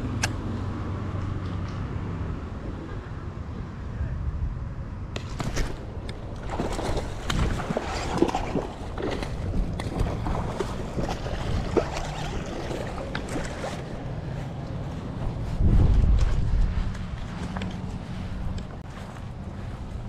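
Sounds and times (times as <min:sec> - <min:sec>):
low wind rumble on microphone: 0:00.0 - 0:20.0
water splashing: 0:05.2 - 0:18.8.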